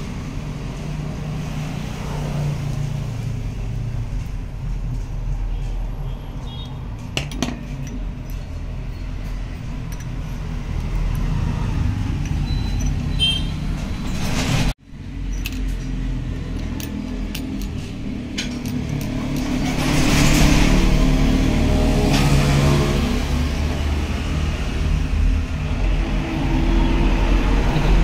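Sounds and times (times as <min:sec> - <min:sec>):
traffic rumble: 0:00.0 - 0:28.0
metallic clinks of small parts: 0:07.3 - 0:13.2, 0:15.2 - 0:19.6.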